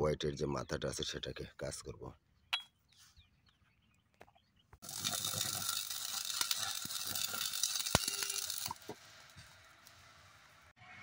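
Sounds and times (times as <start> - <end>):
arc welding crackling: 4.8 - 10.6.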